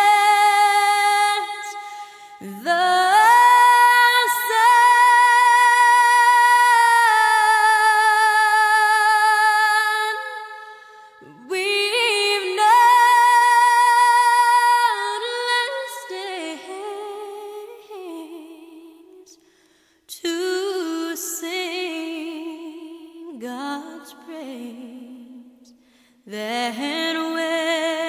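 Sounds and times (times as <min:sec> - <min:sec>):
woman singing slow song: 0:00.0 - 0:19.5, 0:20.1 - 0:28.0.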